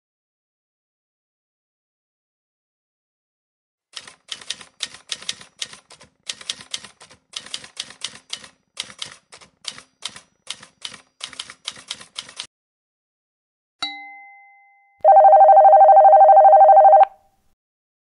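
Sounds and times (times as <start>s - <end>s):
typewriter keys clacking: 4.0s - 12.5s.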